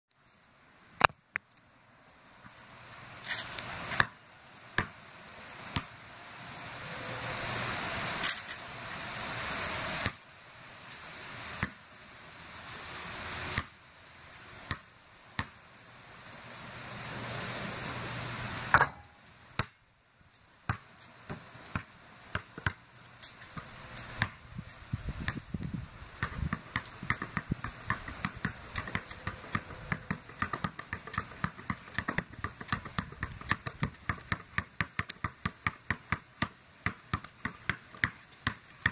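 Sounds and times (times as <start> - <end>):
basketball bouncing on concrete: 3.9 - 4.2, 4.8 - 5.0, 5.7 - 5.9, 11.6 - 11.8, 13.6 - 13.8, 14.7 - 15.6, 19.6 - 19.8, 20.7 - 24.4, 25.2 - 38.9
hiss: 6.3 - 11.6.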